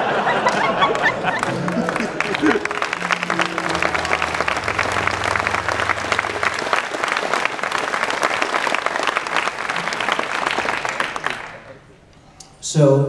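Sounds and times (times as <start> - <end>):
audience applauding: 0.0 - 12.1
low held note: 2.5 - 8.2.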